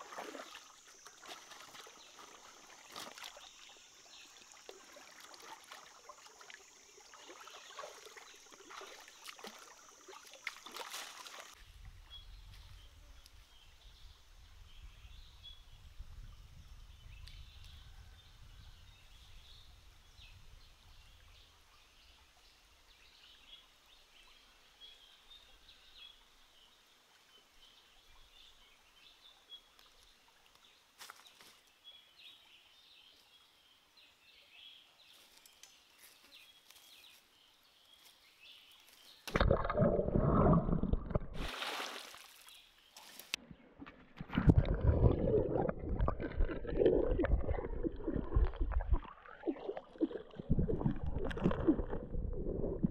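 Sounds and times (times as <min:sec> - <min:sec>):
water splashing and sloshing: 0:00.0 - 0:11.7, 0:39.2 - 0:52.9.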